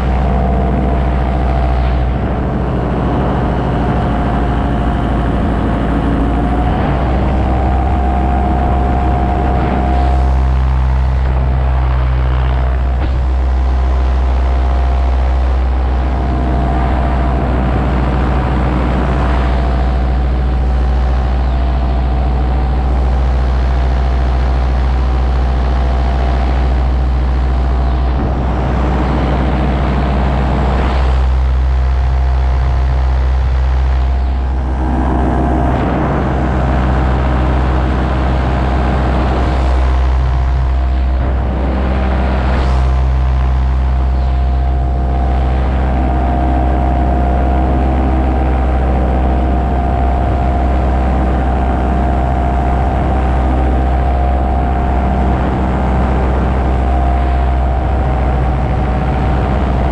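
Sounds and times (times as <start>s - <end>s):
wind rushing on microphone: 0.0s - 13.7s, 27.8s - 33.1s
paramotor engine and propeller: 0.0s - 59.9s.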